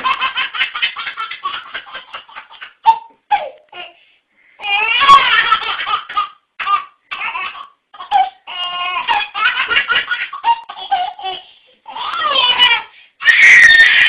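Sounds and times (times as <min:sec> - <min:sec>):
baby laughing: 0:00.0 - 0:03.8, 0:04.6 - 0:14.0.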